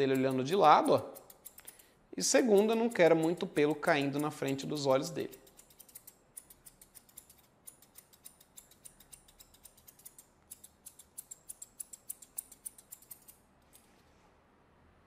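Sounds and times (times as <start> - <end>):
scissors snipping: 0.0 - 13.9.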